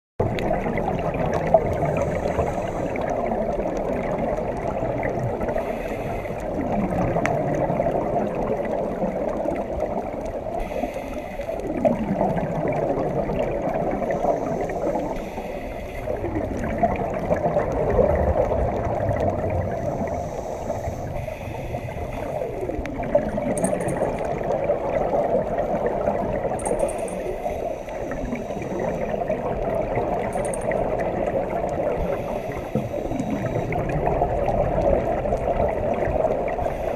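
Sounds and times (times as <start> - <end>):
underwater rushing gurgling water: 0.2 - 36.9
diver regulator breathing: 1.7 - 3.4, 5.4 - 6.7, 10.6 - 11.8, 13.8 - 16.5, 19.7 - 24.4, 26.6 - 29.3, 31.8 - 34.0, 36.4 - 36.9.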